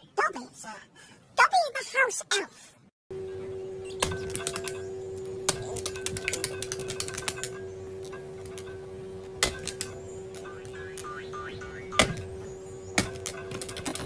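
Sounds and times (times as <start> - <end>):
steady hum: 3.1 - 14.0.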